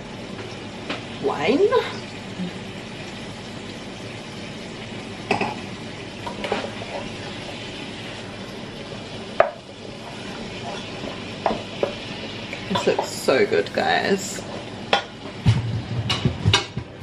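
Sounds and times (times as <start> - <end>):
butter sizzling: 0.0 - 17.0
wooden spoon stirring in pot: 9.4 - 17.0.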